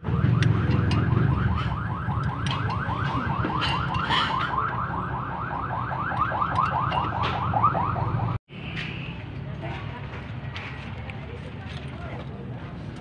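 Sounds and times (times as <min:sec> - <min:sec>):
car alarm warbling chirps: 0:00.1 - 0:08.4.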